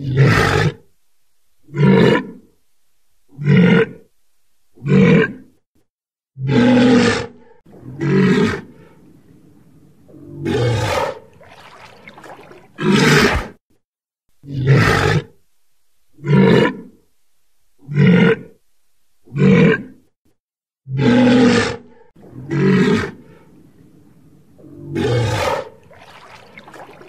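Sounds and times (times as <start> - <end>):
walrus bellowing: 10.1 - 13.6, 24.6 - 27.0.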